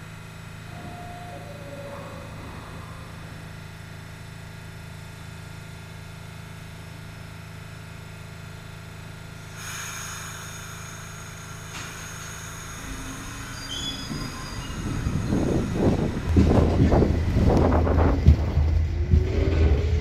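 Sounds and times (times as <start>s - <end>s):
train rumble: 0.0s - 5.8s, 9.4s - 20.0s
train low hum: 0.0s - 20.0s
faint high whines: 0.6s - 4.7s, 9.4s - 16.8s
hiss: 9.5s - 16.2s
gusty wind noise: 14.1s - 20.0s.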